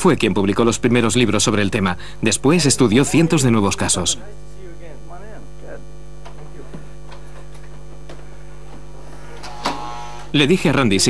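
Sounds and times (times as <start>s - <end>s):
electrical mains hum: 0.0s - 11.0s.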